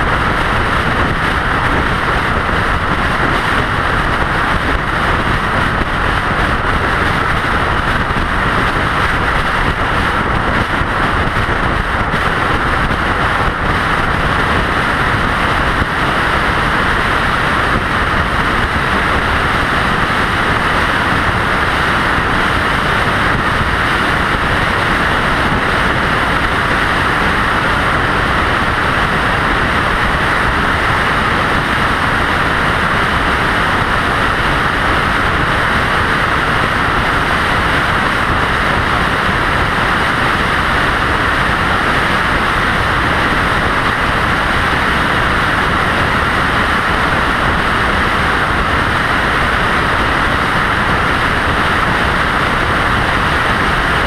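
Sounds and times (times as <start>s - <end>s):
tyre and wind road noise: 0.0s - 54.0s.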